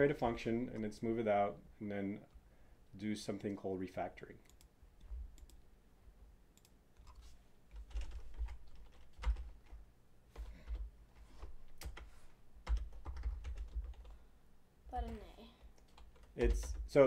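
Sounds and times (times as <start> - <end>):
keyboard typing: 4.4 - 5.6, 6.6 - 10.9, 11.6 - 14.2, 15.0 - 17.0.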